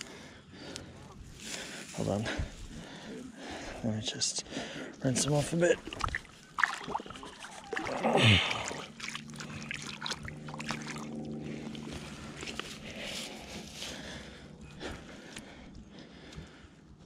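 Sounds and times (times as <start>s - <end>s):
steady low hum: 0.0s - 17.0s
water sloshing and splashing: 5.0s - 12.8s.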